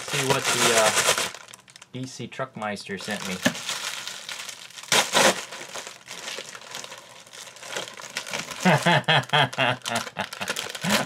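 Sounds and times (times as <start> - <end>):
man speaking: 0.0 - 1.0, 2.0 - 3.6
plastic mailer ripping: 0.0 - 2.0, 3.0 - 11.0
plastic crinkling and rustling: 0.0 - 11.0.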